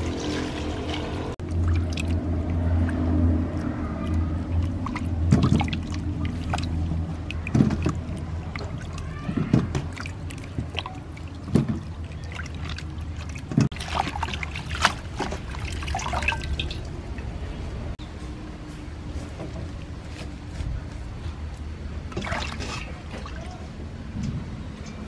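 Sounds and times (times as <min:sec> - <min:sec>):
water dripping: 0:00.0 - 0:17.9
water splashing in a steel basin: 0:00.0 - 0:18.0, 0:22.1 - 0:23.8.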